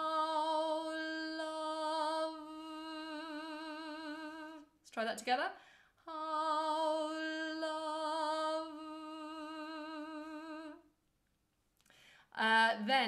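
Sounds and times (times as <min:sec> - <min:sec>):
woman singing long held note: 0:00.0 - 0:04.7, 0:06.1 - 0:10.8.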